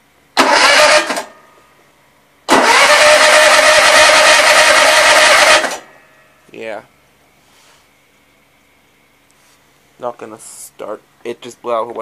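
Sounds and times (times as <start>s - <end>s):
electric starter cranking engine: 0.4s - 1.3s, 2.5s - 5.9s.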